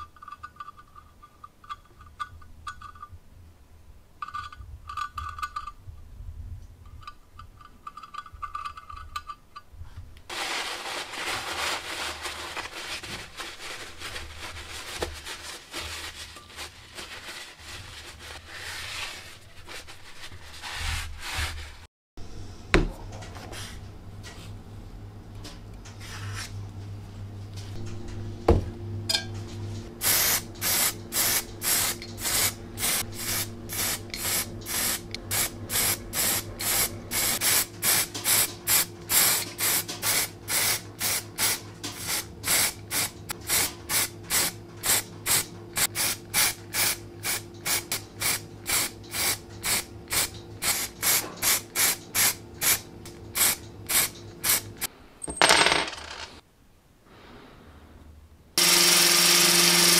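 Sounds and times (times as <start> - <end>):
spray paint can hissing bursts: 30.0 - 52.8, 53.4 - 54.7.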